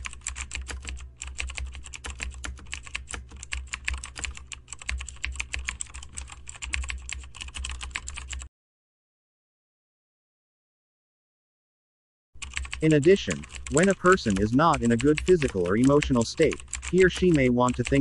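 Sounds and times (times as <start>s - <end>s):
fast keyboard typing: 0.0s - 8.5s, 12.4s - 18.0s.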